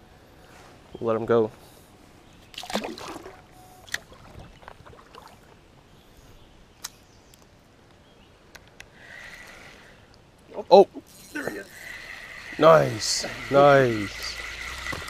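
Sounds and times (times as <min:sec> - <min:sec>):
water sloshing: 0:02.5 - 0:05.7
fish splashing into water: 0:02.6 - 0:05.5.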